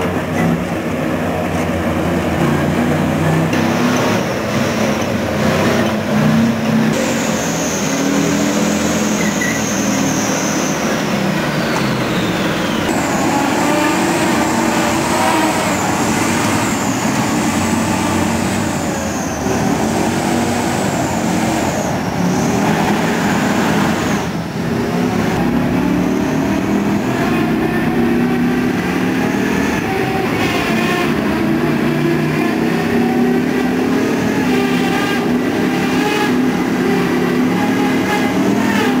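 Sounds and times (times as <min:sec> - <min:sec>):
diesel engine running loud: 0:00.0 - 0:39.0
high whine: 0:06.9 - 0:28.5.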